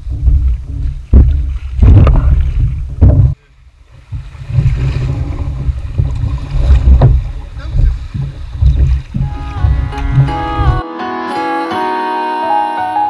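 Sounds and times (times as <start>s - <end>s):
wind buffeting microphone: 0.0s - 10.8s
sharp knocks on kayak: 4.1s - 10.4s.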